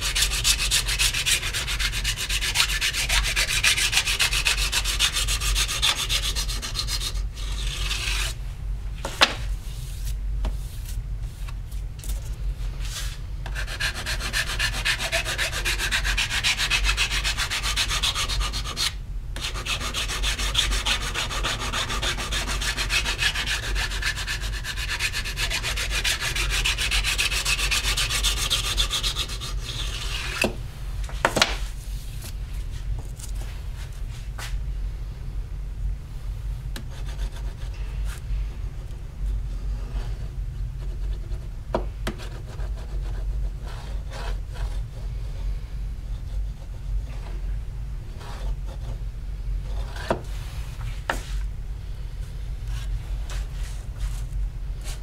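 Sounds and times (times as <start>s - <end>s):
sanding strokes on copper plate: 0.0s - 8.3s, 13.5s - 30.4s
steady low hum: 0.0s - 55.0s.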